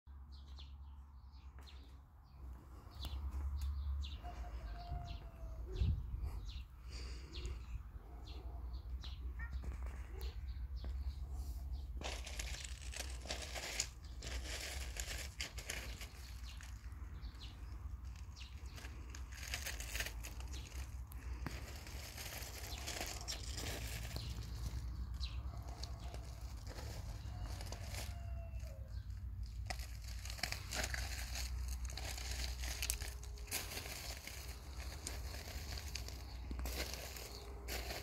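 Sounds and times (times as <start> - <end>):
wind buffeting microphone: 5.1 - 6.6.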